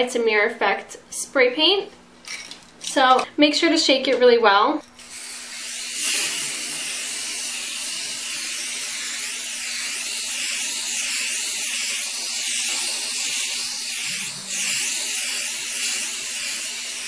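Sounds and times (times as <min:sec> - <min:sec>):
spray paint can hissing: 0:05.0 - 0:17.0.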